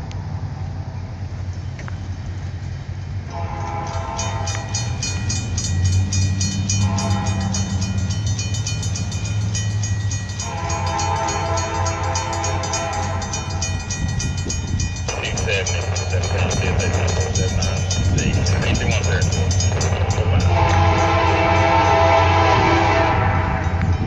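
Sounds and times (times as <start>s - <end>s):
locomotive low rumble: 0.0s - 24.0s
locomotive air horn blasts: 3.3s - 5.0s, 6.7s - 7.9s, 10.4s - 13.8s, 20.0s - 23.9s.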